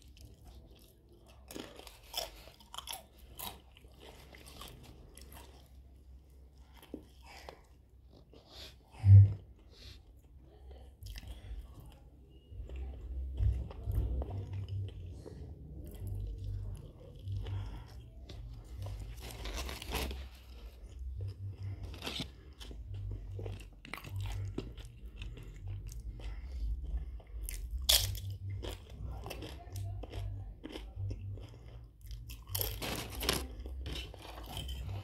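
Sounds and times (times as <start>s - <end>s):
tortilla chip crunching: 0.0s - 5.8s, 16.4s - 35.0s
mouth chewing food: 0.0s - 35.0s.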